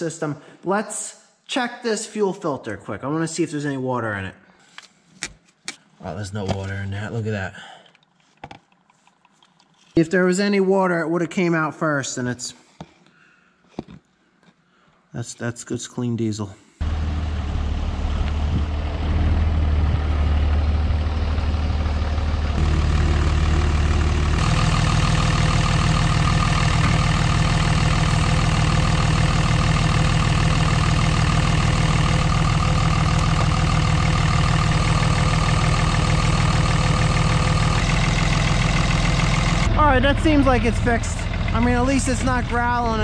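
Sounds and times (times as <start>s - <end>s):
diesel engine idling: 16.8s - 43.0s.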